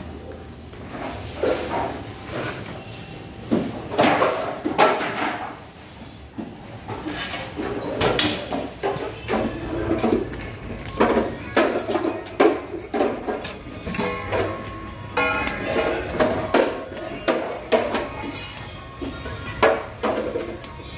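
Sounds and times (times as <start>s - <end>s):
metal clattering and scraping: 6.8s - 18.7s.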